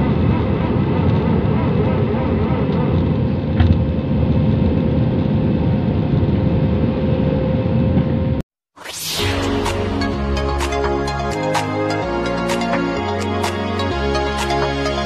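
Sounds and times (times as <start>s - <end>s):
jet engine cabin rumble: 0.0s - 8.4s.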